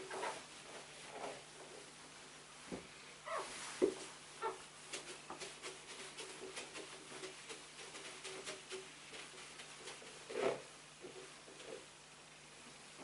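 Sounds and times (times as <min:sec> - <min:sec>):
duster wiping whiteboard: 0:03.3 - 0:11.9.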